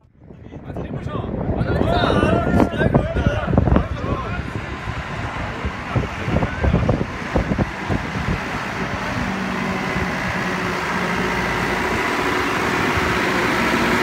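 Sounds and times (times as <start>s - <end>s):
tractor diesel engine running: 2.8s - 14.0s.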